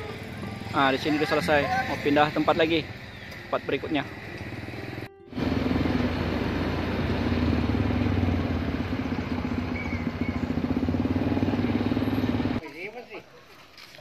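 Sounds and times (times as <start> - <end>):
vehicle engine running: 1.6 - 12.6.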